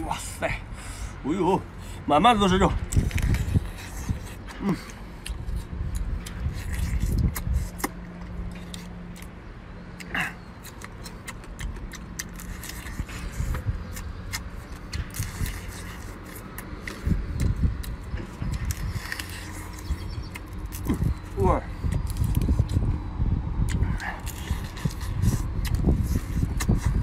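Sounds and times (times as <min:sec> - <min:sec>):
low steady rumble: 0:00.0 - 0:27.0
sucking and chewing: 0:02.7 - 0:27.0.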